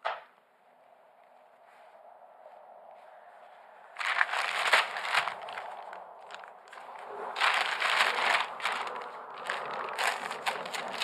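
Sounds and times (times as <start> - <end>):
plastic envelope crinkling: 4.0 - 11.0.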